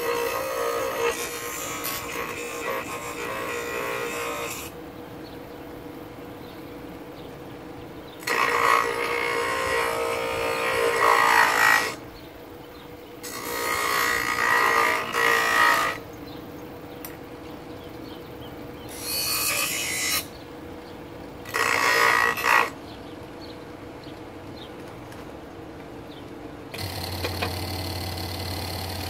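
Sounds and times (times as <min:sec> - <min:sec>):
bench grinder motor humming: 0:00.0 - 0:04.7, 0:08.2 - 0:12.0, 0:13.2 - 0:16.0, 0:21.5 - 0:22.7, 0:26.8 - 0:29.0
wood grinding on wheel: 0:00.0 - 0:04.7, 0:08.2 - 0:12.0, 0:13.2 - 0:16.0, 0:21.5 - 0:22.8, 0:26.8 - 0:29.0.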